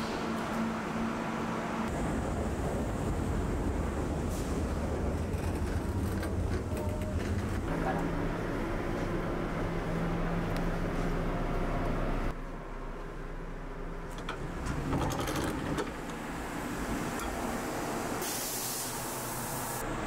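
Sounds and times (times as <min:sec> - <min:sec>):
train carriage hum: 0:00.0 - 0:20.0.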